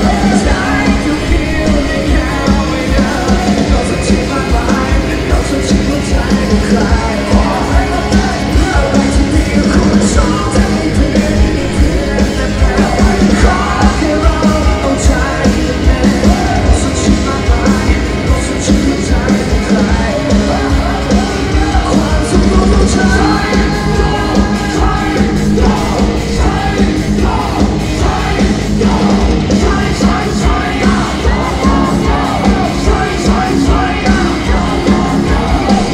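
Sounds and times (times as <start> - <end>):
live band playing: 0.0 - 35.9
people shouting vocals: 20.1 - 35.9.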